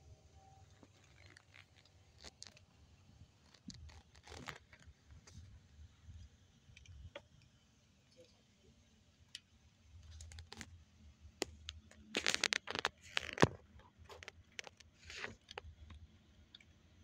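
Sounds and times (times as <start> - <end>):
plastic sheet crinkling: 3.4 - 4.8, 11.9 - 15.4.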